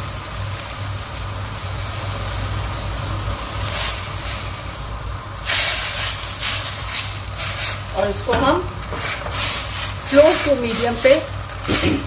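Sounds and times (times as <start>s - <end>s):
gravy bubbling hiss: 0.0s - 12.0s
hissing rush: 3.1s - 12.0s.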